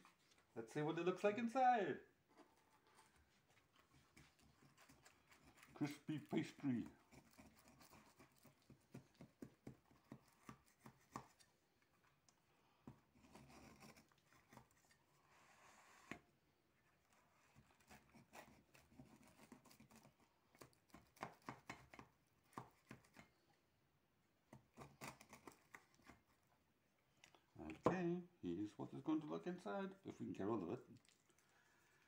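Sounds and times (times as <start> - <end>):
knife crunching pastry crust: 24.6 - 26.3.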